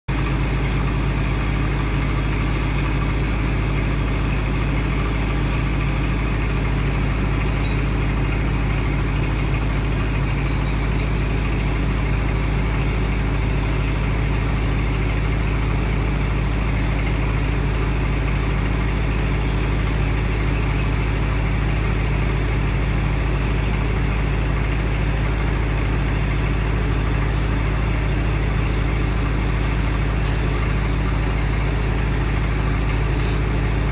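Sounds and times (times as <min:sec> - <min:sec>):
engine droning: 0:00.1 - 0:33.9
faint high chirps: 0:07.4 - 0:07.9, 0:10.1 - 0:11.4, 0:14.3 - 0:14.9, 0:20.2 - 0:21.2, 0:26.2 - 0:27.7.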